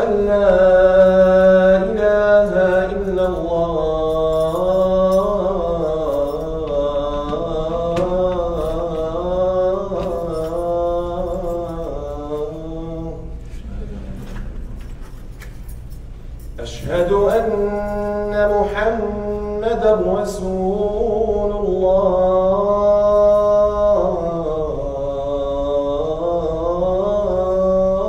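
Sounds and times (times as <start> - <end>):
man chanting: 0.0 - 14.4, 16.6 - 28.0.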